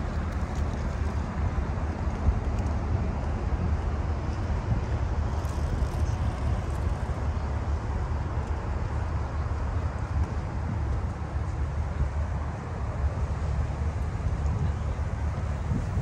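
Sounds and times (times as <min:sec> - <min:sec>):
traffic rumble: 0:00.0 - 0:16.0
wind gusting on microphone: 0:00.0 - 0:16.0.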